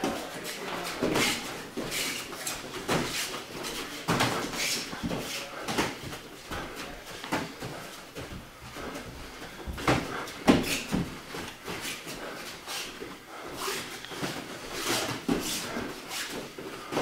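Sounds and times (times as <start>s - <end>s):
boxing gloves thudding and slapping: 2.8s - 6.6s, 9.6s - 11.6s.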